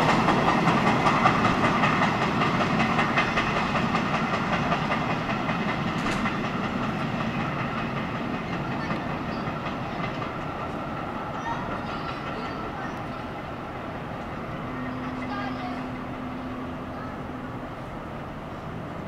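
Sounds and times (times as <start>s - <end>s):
train wheels rolling on rails: 0.0s - 19.0s.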